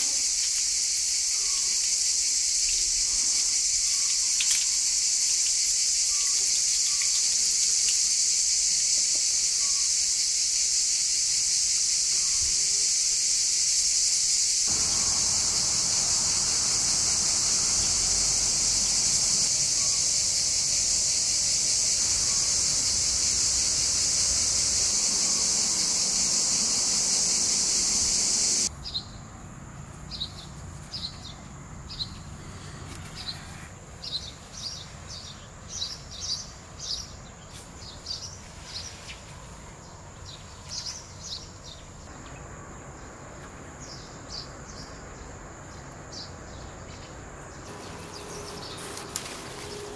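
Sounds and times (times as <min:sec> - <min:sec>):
insects chorus: 0:00.0 - 0:49.9
bird chirping: 0:03.7 - 0:08.0.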